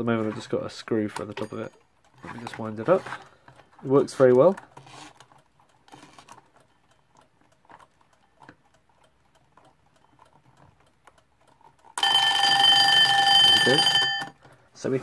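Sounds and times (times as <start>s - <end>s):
alarm clock bell ringing: 1.2s - 2.5s, 12.0s - 14.4s.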